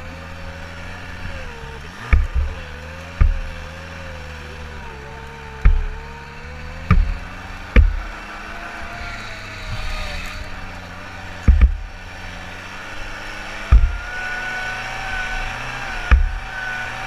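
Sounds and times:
buggy engine running: 0.0s - 17.0s
heavy low thumps: 2.1s - 3.8s, 5.6s - 8.3s, 11.4s - 12.1s, 13.7s - 14.2s, 16.1s - 16.6s.

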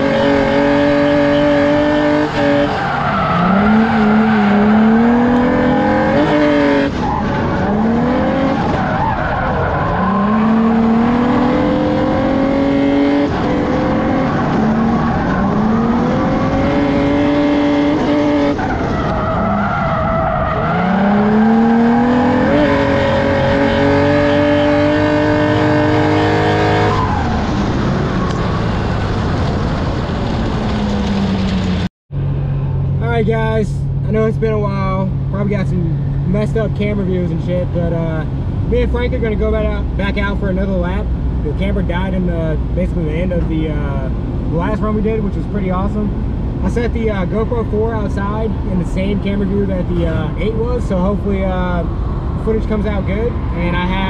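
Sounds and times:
car engine revving hard: 0.0s - 8.9s, 9.6s - 29.2s
tyre squeal and skidding: 2.3s - 10.9s, 14.1s - 17.0s, 18.0s - 23.3s, 26.4s - 29.2s.

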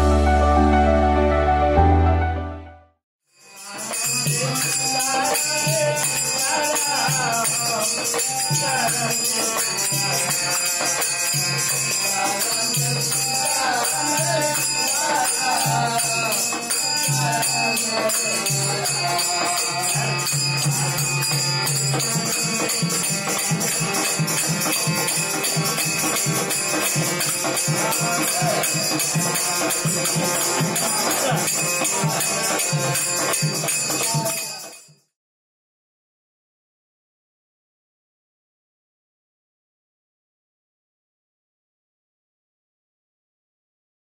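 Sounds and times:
harmonium playing: 0.0s - 2.9s, 8.7s - 34.2s
small hand cymbals jingling: 3.5s - 35.0s.

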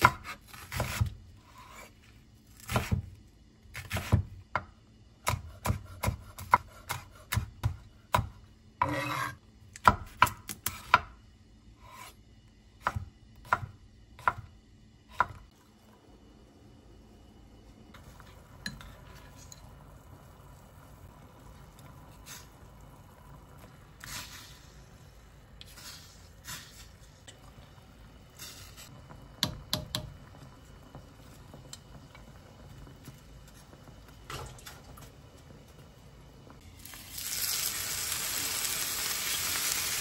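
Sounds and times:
knife chopping on cutting board: 0.0s - 1.9s, 2.6s - 3.1s, 5.2s - 11.2s
knife scraping on board: 8.8s - 9.4s, 11.8s - 12.2s.

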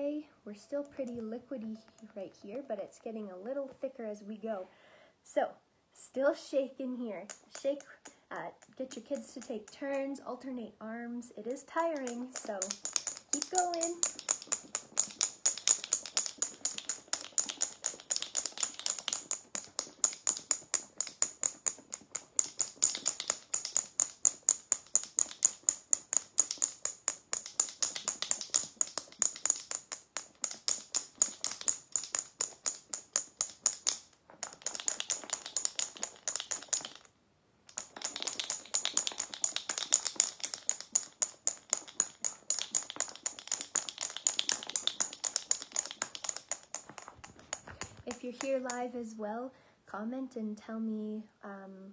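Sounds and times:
marbles clacking in shaken jar: 7.2s - 10.2s, 11.4s - 37.1s, 37.7s - 48.9s.

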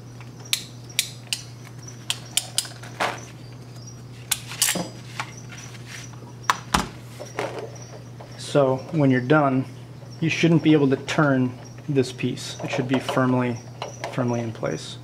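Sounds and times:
crimping tool metallic clicks: 0.5s - 1.5s.

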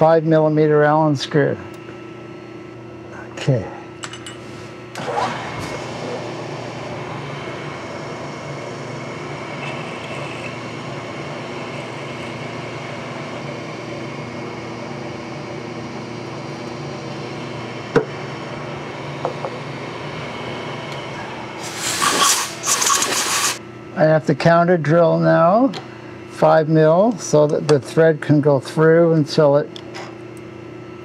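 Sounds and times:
milling machine cutting metal: 4.9s - 13.9s
compressed air hiss: 21.6s - 23.6s.

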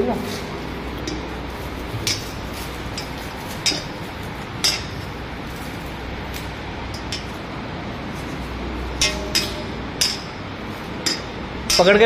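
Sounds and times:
steady low hum: 0.0s - 12.0s
metallic clinks and taps: 1.0s - 5.1s, 9.0s - 10.4s.

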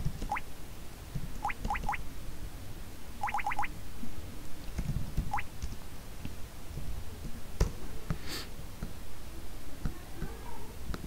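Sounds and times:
keyboard keys tapping: 1.4s - 2.0s
short rising chirp: 3.2s - 3.7s.

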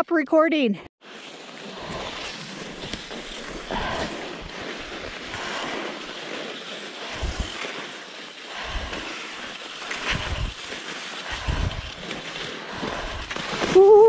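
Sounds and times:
skis swishing over snow: 1.0s - 14.0s
wind rumbling on microphone: 1.8s - 6.2s, 7.0s - 7.6s, 8.5s - 14.0s.

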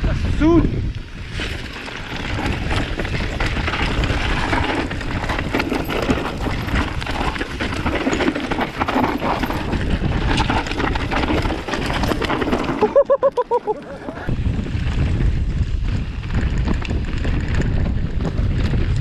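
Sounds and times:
bike rattling over bumps: 0.0s - 19.0s
wind rumble on microphone: 0.0s - 19.0s
tyres crunching over stones: 1.3s - 15.0s.

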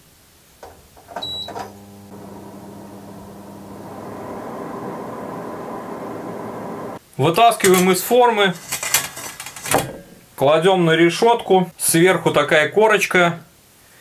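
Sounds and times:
fan motor humming: 1.2s - 7.0s.

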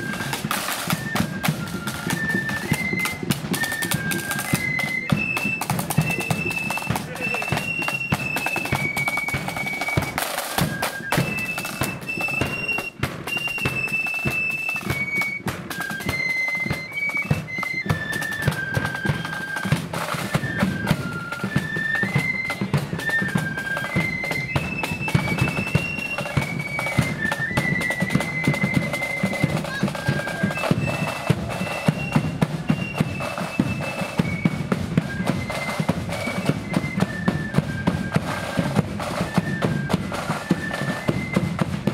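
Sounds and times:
flutes playing melody: 0.0s - 41.9s
side drums: 0.0s - 41.9s.

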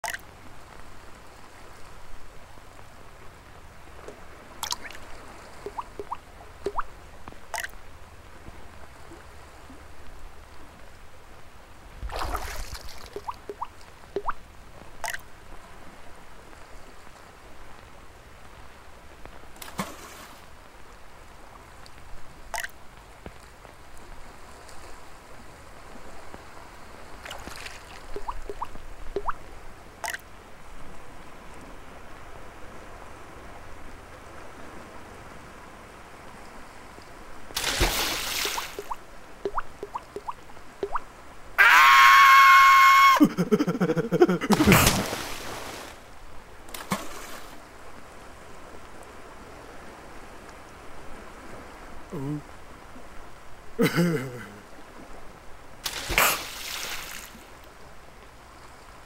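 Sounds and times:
water drips and plinks: 0.0s - 0.4s, 4.0s - 7.9s, 12.0s - 15.4s, 21.8s - 23.1s, 27.2s - 30.3s, 37.5s - 41.1s
water lapping: 0.0s - 10.0s, 12.0s - 17.4s, 36.3s - 41.0s.

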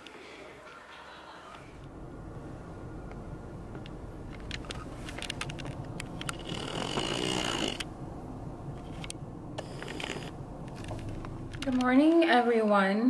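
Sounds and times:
low rumble inside car: 1.6s - 12.1s
light clicks and rattles: 3.8s - 7.9s, 8.7s - 12.3s.

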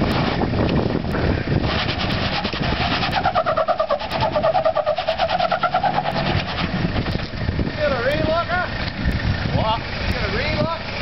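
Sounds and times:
truck engine under load: 0.0s - 11.0s
wavering high whine: 1.7s - 7.4s.

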